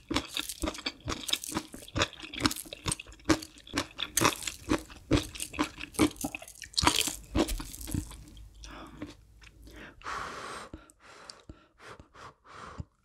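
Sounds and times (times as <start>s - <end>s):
crunchy food chewing: 0.0s - 9.7s.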